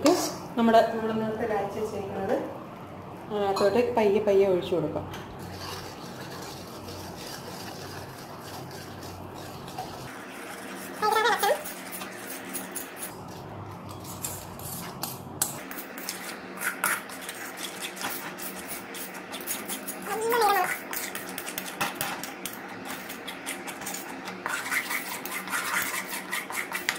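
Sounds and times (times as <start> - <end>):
metal spoon scraping a metal pan: 22.9 - 26.9.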